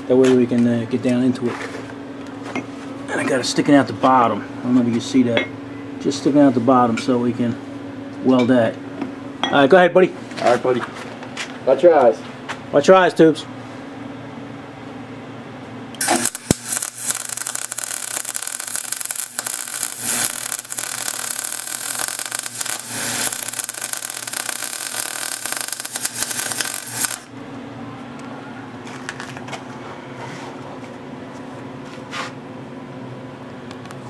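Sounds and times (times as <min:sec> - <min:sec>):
welder arc crackling: 0:16.0 - 0:27.3.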